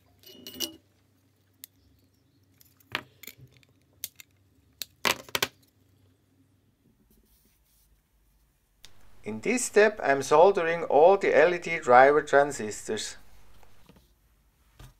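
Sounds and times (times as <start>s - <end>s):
clicks and clinks of handled parts: 2.5s - 5.3s.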